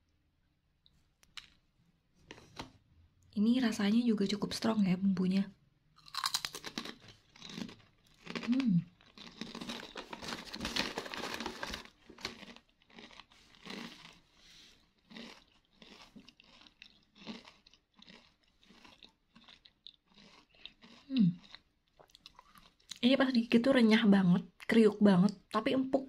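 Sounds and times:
crisps being chewed: 6.0 - 23.0.

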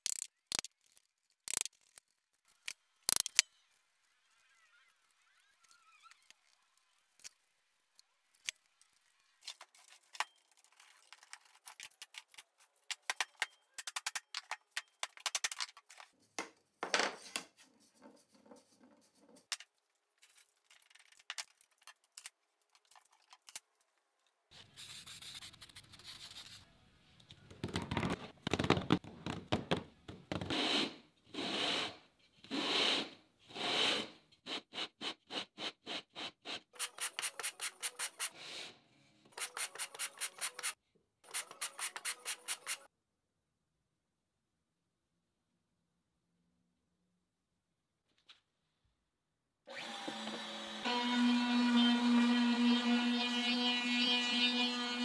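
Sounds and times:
scratching and clicking handling noises: 0.0 - 3.5, 5.5 - 16.6, 17.2 - 24.4
wood sanding on sandpaper: 33.6 - 38.6, 39.4 - 42.9.

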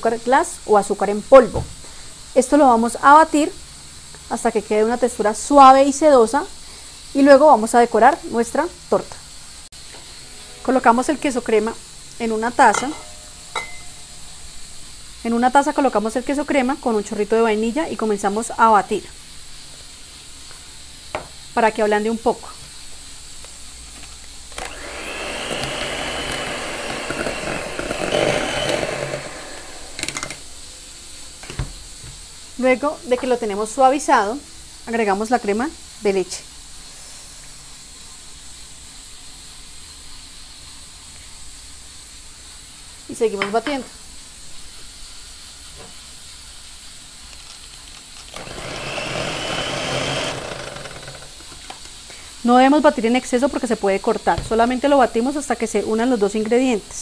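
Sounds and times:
electric hand mixer whining: 24.6 - 30.4, 48.3 - 51.3.

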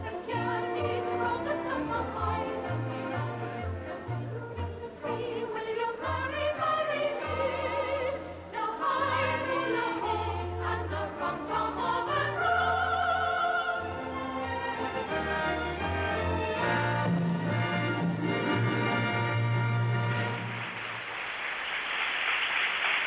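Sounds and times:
group of singers: 0.0 - 18.0
low instrumental accompaniment: 13.9 - 20.6.

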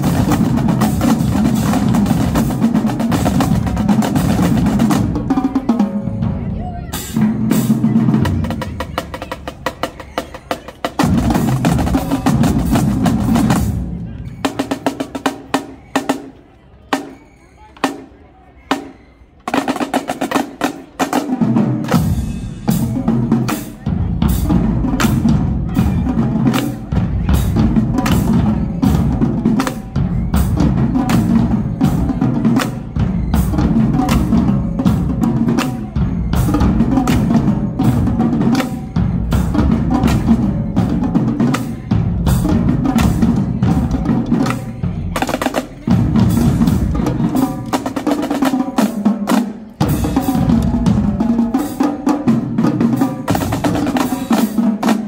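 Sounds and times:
tenor drums: 0.0 - 17.2, 17.8 - 55.0
snare drum patterns: 19.5 - 55.0.

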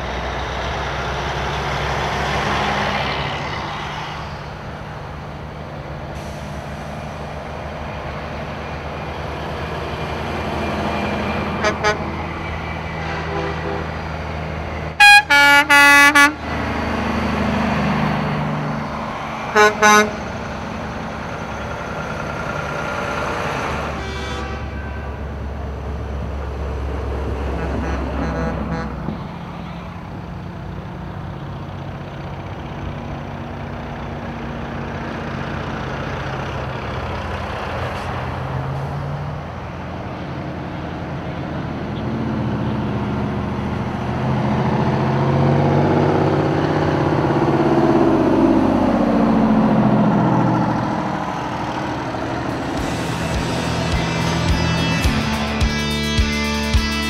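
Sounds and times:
diesel trucks driving past: 0.0 - 57.0
truck air horn blasts: 11.5 - 12.3, 13.0 - 14.0, 15.0 - 16.5, 19.5 - 20.4, 23.8 - 25.4, 27.5 - 29.3, 52.5 - 55.6.

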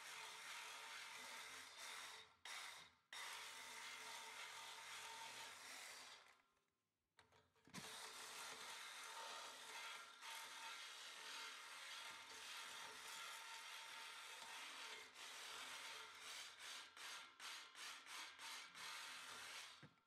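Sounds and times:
saw cutting through brass: 0.1 - 6.1, 7.8 - 19.8.

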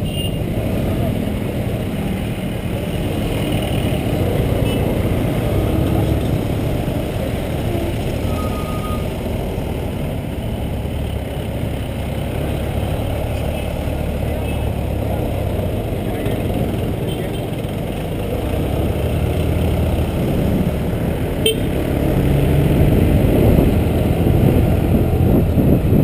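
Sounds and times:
passing scooters and motorcycles: 0.0 - 26.0
road and wind noise: 0.0 - 26.0
faint short beep: 8.2 - 9.1.

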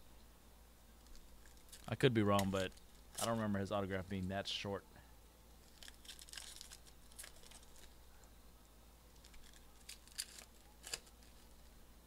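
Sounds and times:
cards and foil wrappers crinkling: 1.0 - 3.6, 5.6 - 8.1, 9.1 - 11.8.

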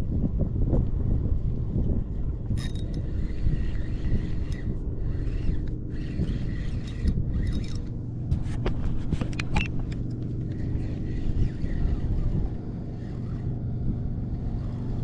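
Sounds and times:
wind buffeting microphone: 0.0 - 15.0
fishing reel clicking: 2.5 - 13.6.

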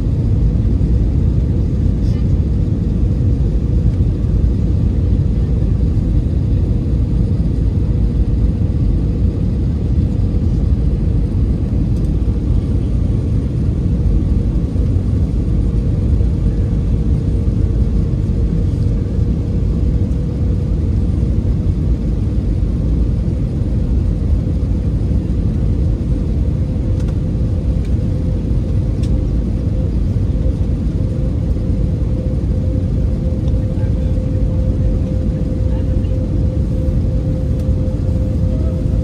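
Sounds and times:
faint constant hum: 0.0 - 39.0
jet engine and airflow rumble: 0.0 - 39.0.

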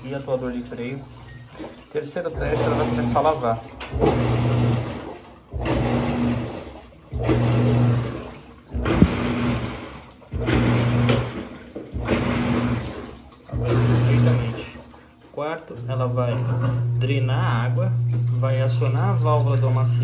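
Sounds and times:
washing machine motor humming: 0.0 - 20.0
water churning in drum: 0.0 - 20.0.

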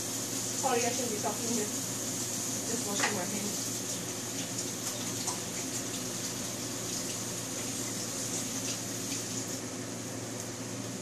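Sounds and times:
tap running over washing hands: 2.8 - 9.6.

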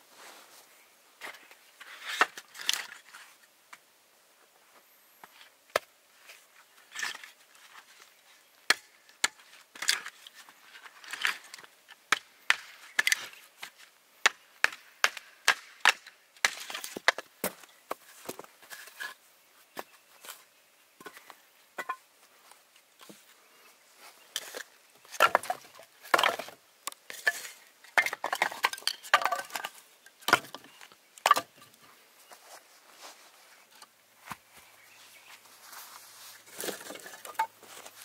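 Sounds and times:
firewood splitting knocks and cracks: 25.1 - 26.6, 28.0 - 30.6.

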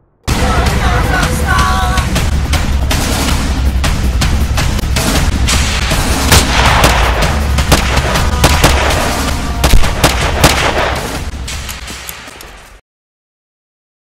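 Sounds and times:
background music: 0.0 - 12.8
gunshots: 5.0 - 12.8.

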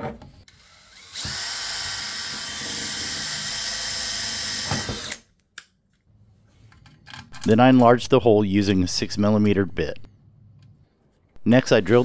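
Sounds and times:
cordless drill drilling metal: 0.5 - 5.3.

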